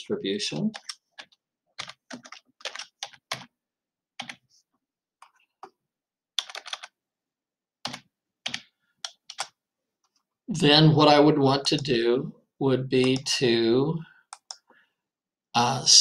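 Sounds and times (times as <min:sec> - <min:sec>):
keyboard typing: 0:00.6 - 0:03.6, 0:04.2 - 0:04.5, 0:05.2 - 0:07.0, 0:07.8 - 0:10.2, 0:13.0 - 0:13.4, 0:14.3 - 0:14.7.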